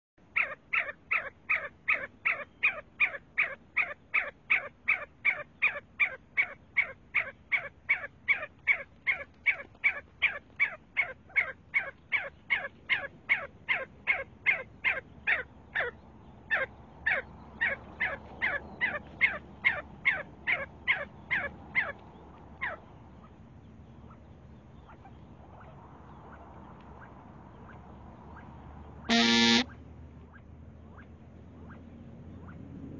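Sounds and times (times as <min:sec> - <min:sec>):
partridge calling: 0:29.1 - 0:29.6.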